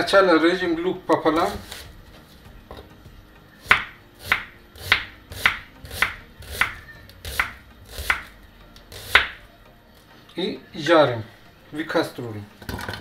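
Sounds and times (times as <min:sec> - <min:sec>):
knife slicing onion on board: 0:01.3 - 0:02.9, 0:03.6 - 0:09.5.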